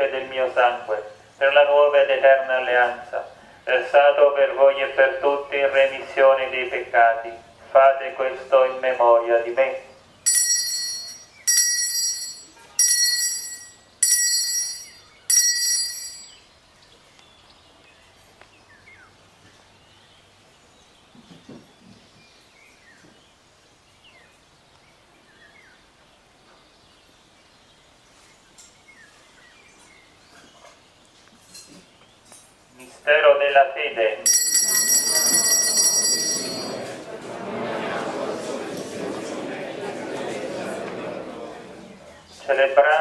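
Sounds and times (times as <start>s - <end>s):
small bell ringing: 10.3s - 16.5s, 34.2s - 37.0s.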